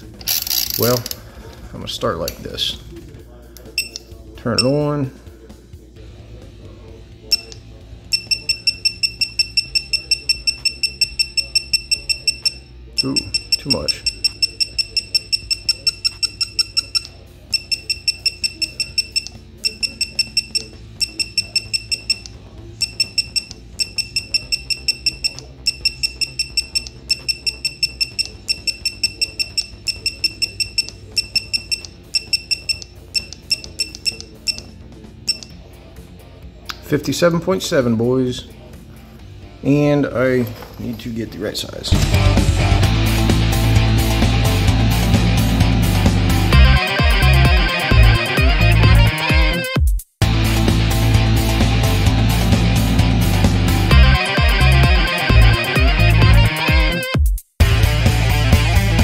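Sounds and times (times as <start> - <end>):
digital torque wrench beeping: 3.7 - 4.8, 7.3 - 35.6, 46.0 - 49.8, 53.3 - 57.1.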